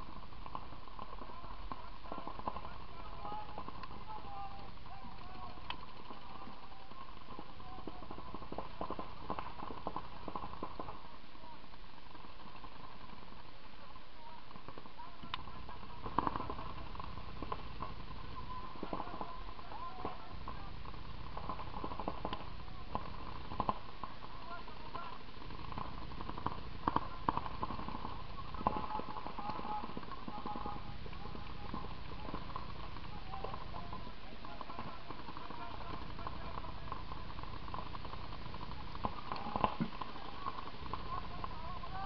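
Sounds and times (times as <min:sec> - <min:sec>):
players shouting: 0:01.1 - 0:11.6, 0:14.2 - 0:23.7, 0:26.2 - 0:37.2
paintball markers firing: 0:14.7 - 0:42.0.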